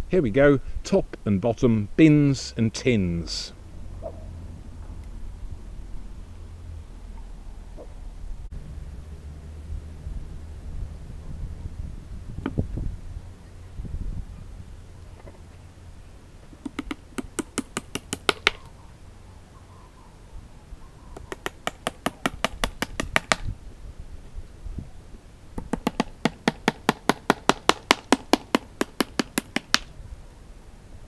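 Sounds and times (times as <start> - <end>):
hammer striking nails into wood: 16.6 - 18.7, 21.2 - 23.5, 25.6 - 29.9.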